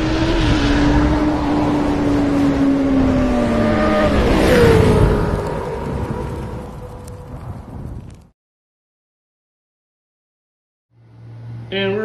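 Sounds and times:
motorcycle engine at high revs: 0.0s - 6.2s
rush of noise: 0.0s - 7.7s.

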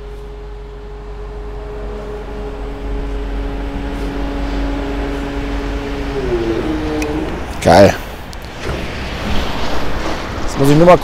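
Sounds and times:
scissor lift hum and whine: 0.0s - 7.6s.

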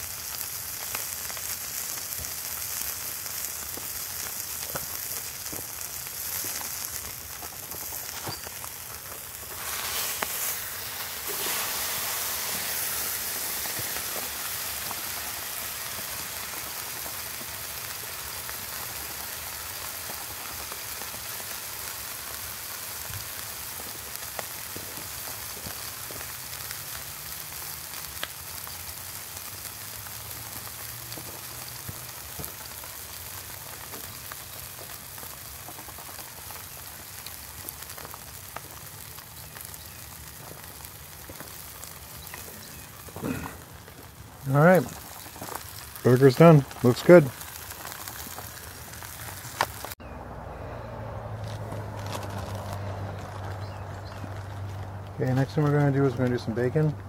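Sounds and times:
grease popping: 0.0s - 50.0s, 51.4s - 57.0s
burger sizzling in frying pan: 0.0s - 50.1s, 51.4s - 56.9s.

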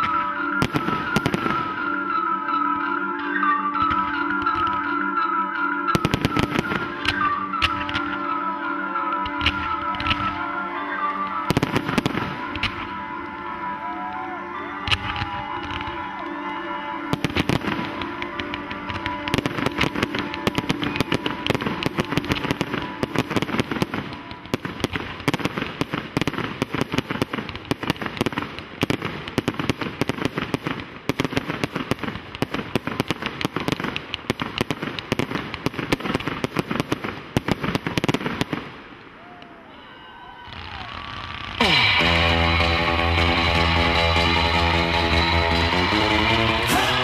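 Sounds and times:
music: 0.0s - 37.0s, 40.6s - 47.0s
fireworks barrage: 0.0s - 47.0s.

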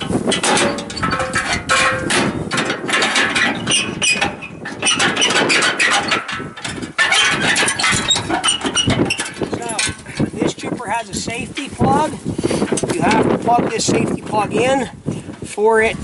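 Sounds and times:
metal hood knocking and clanking: 0.0s - 10.0s.

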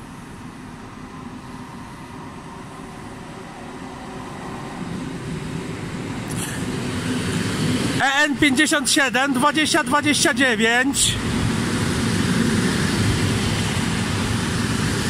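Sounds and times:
electric train arriving: 0.0s - 15.0s.

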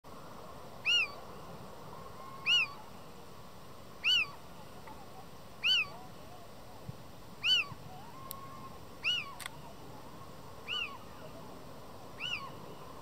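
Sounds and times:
owl mewing call: 0.8s - 1.2s, 2.0s - 3.0s, 4.0s - 4.4s, 5.6s - 6.0s, 7.4s - 9.5s, 10.6s - 11.1s, 12.2s - 12.6s
faint lower owl calls: 0.8s - 3.1s, 4.0s - 4.5s, 5.6s - 6.4s, 7.4s - 9.8s, 10.6s - 11.2s, 12.2s - 13.0s.

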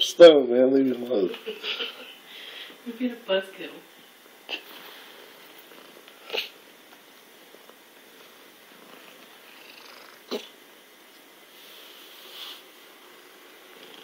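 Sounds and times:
cat purring: 4.5s - 6.6s, 7.5s - 10.6s, 11.5s - 14.0s.

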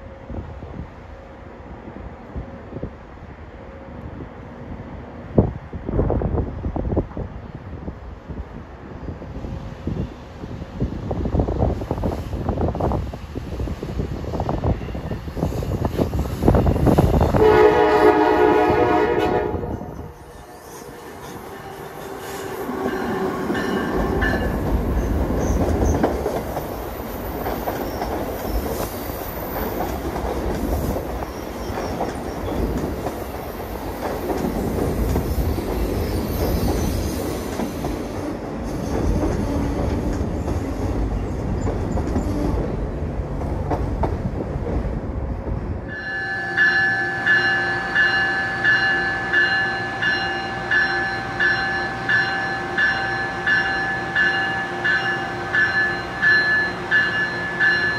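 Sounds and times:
train rumbling and clattering over rails: 0.0s - 57.9s
locomotive bell ringing: 22.8s - 25.2s, 45.9s - 57.9s.

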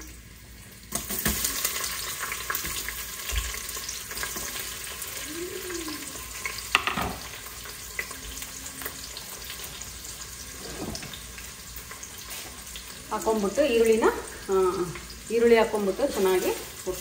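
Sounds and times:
onions sizzling in hot oil: 0.0s - 17.0s
utensil scraping pot: 10.4s - 11.4s.

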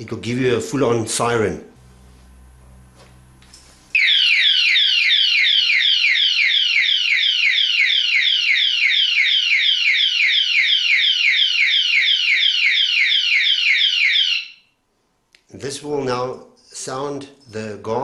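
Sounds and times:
electronic alarm siren wailing: 4.0s - 14.7s.

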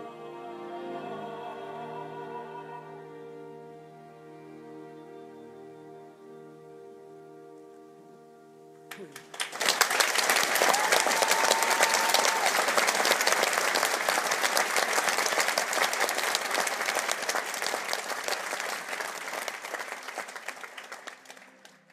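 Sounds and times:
audience applauding: 8.9s - 21.9s.

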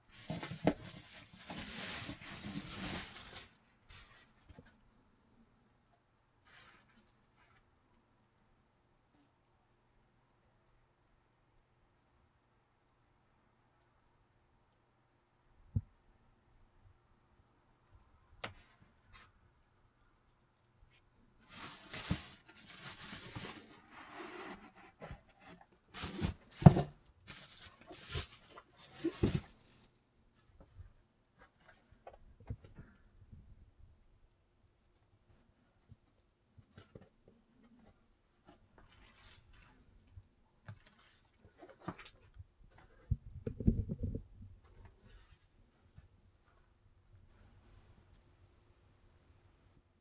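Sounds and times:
rustling of packing materials: 0.0s - 4.9s, 6.4s - 7.7s, 20.9s - 33.0s, 35.9s - 43.2s
bubble wrap crinkling: 0.1s - 4.4s, 21.4s - 24.5s, 27.2s - 29.9s, 38.9s - 40.1s, 40.8s - 41.8s.

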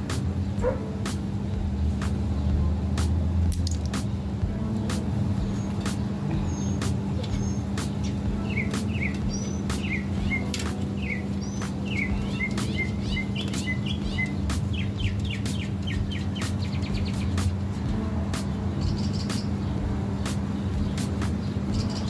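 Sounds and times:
steady low hum: 0.0s - 22.0s
small bird chirping: 5.4s - 17.5s, 18.8s - 22.0s.

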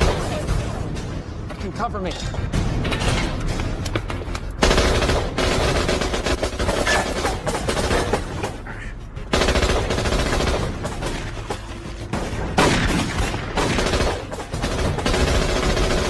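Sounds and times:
automatic gunfire: 12.1s - 16.0s.

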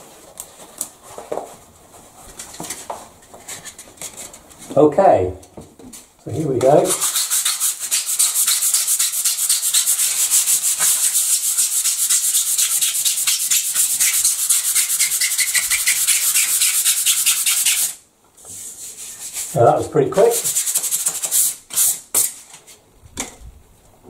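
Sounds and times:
sandpaper rubbing on a wall: 6.8s - 22.5s.

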